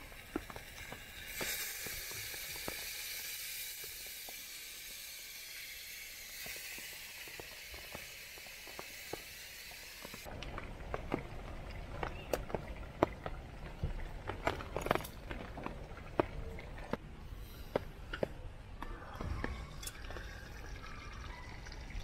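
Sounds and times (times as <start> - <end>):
chicken sizzling in a pot: 0.0 - 10.3.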